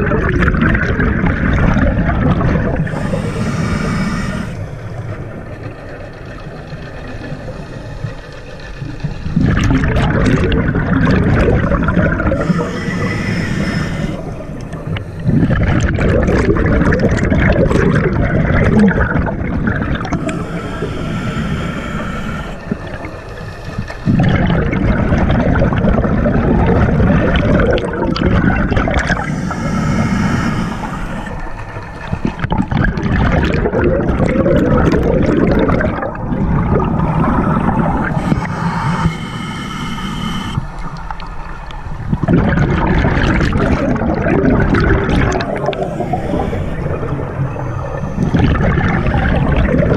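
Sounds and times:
regulator bubbles gurgling underwater: 0.0s - 49.9s
regulator hissing on inhale: 2.6s - 5.5s, 7.1s - 8.6s, 11.1s - 17.0s, 19.6s - 24.4s, 27.3s - 32.5s, 36.8s - 41.2s, 45.0s - 49.9s.

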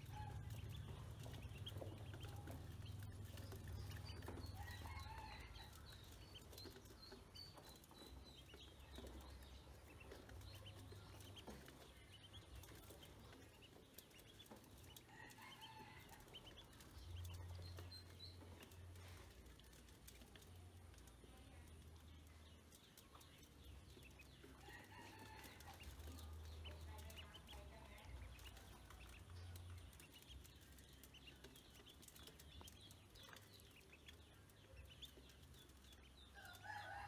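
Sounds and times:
ducklings peeping: 0.0s - 37.0s.

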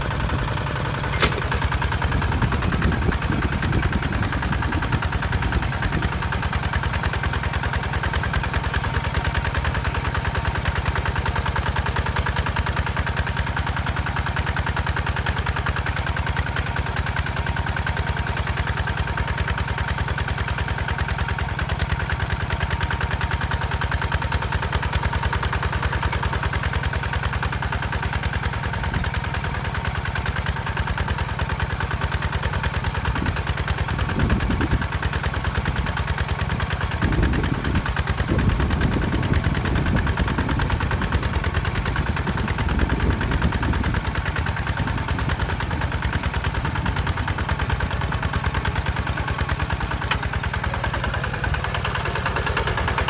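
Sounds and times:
diesel tractor engine chugging: 0.0s - 53.0s.

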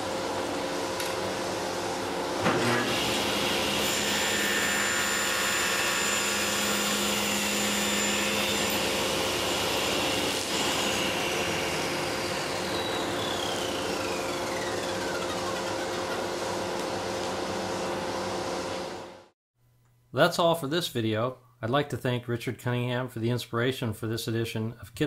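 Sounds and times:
table saw cutting aluminum: 1.2s - 19.2s
saw blade whine spinning down: 2.8s - 19.1s.

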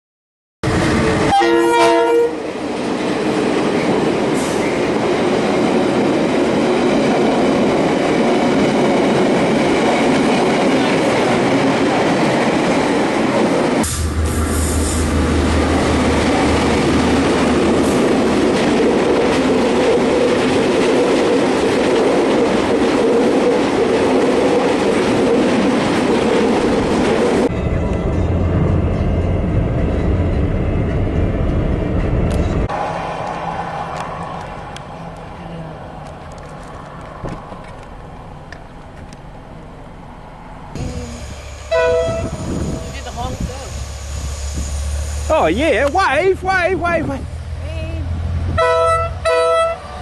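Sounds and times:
passenger train rumbling past: 0.6s - 50.0s
train horn chord: 1.3s - 2.5s, 41.6s - 42.5s, 48.5s - 50.0s.

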